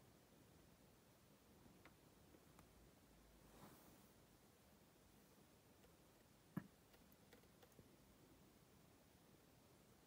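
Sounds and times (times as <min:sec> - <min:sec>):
faint rustle: 0:03.2 - 0:04.3.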